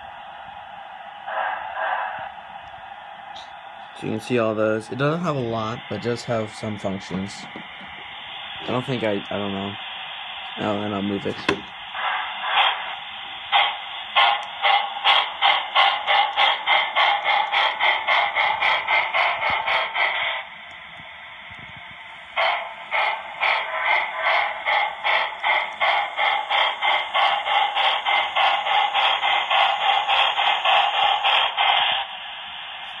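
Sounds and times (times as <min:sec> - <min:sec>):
model locomotive steam chuffing: 0:01.2 - 0:02.4, 0:03.4 - 0:33.0.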